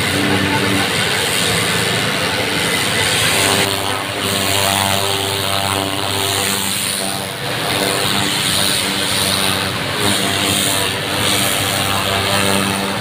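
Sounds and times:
pressure washer motor drone: 0:00.0 - 0:13.0
water jet hissing on concrete: 0:00.0 - 0:13.0.

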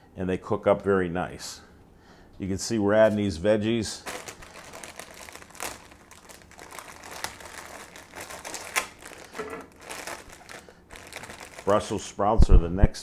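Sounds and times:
plastic bag crinkling: 0:03.9 - 0:12.2.

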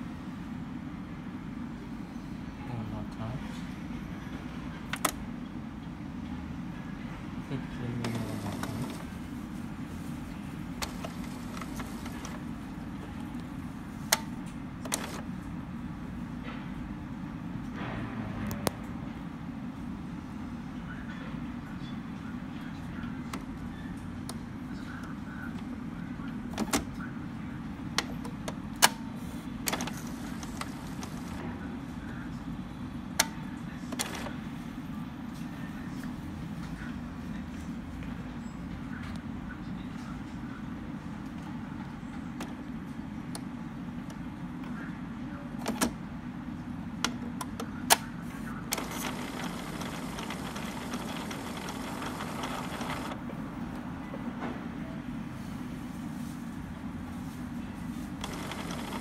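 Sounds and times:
printer mechanism humming: 0:02.6 - 0:06.4, 0:07.5 - 0:16.6, 0:21.6 - 0:36.2, 0:45.5 - 0:54.0, 0:58.1 - 0:59.0
sharp printer clicks: 0:04.9 - 0:05.2, 0:08.0 - 0:09.1, 0:10.8 - 0:12.5, 0:14.1 - 0:15.3, 0:26.5 - 0:27.0, 0:29.6 - 0:31.4, 0:33.2 - 0:34.4, 0:45.6 - 0:46.0, 0:47.0 - 0:53.2, 0:58.2 - 0:59.0.

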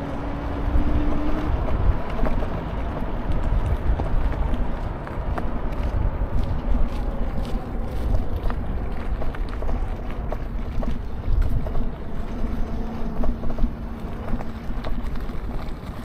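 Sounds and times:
steady low hum: 0:00.0 - 0:16.0
wind rumbling on microphone: 0:00.0 - 0:16.0.

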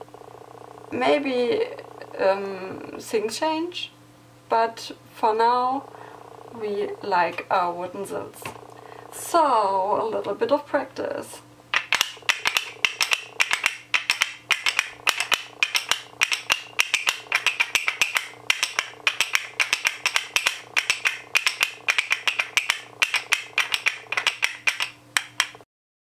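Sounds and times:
finger cymbals clacking: 0:11.8 - 0:25.6.

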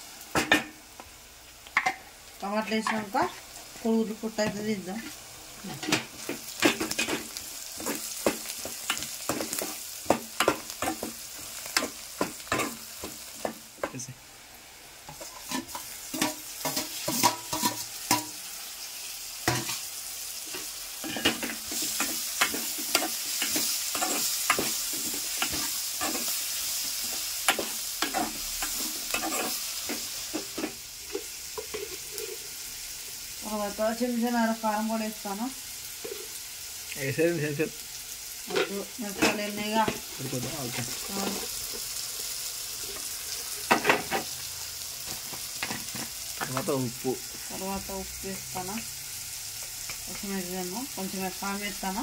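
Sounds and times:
vegetables sizzling in oil: 0:00.0 - 0:52.0
spoon scraping and knocking pot: 0:15.1 - 0:18.3, 0:27.0 - 0:32.5.

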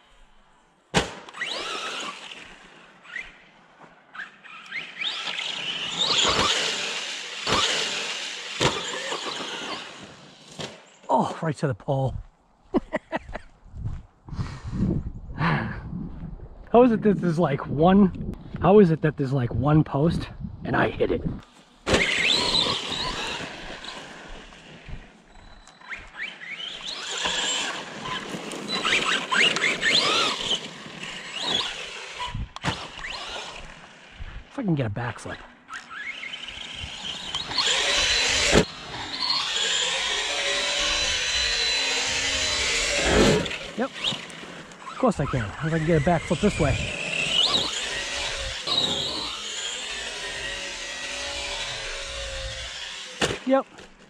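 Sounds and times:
electric motor whining: 0:01.3 - 0:03.4, 0:04.2 - 0:10.8, 0:21.4 - 0:34.5, 0:35.7 - 0:53.9
drivetrain and tyre noise: 0:01.3 - 0:11.1, 0:20.8 - 0:54.0.

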